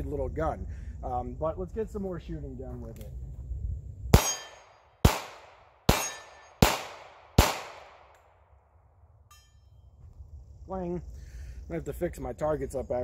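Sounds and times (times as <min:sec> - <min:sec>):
revolver gunshots: 0:04.1 - 0:08.2
steel targets ringing: 0:04.2 - 0:04.8, 0:05.9 - 0:06.7.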